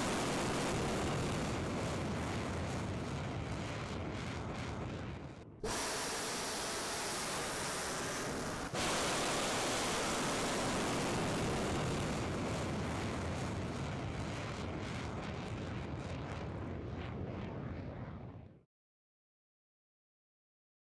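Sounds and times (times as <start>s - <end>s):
rocket motor blast: 0.0s - 15.7s.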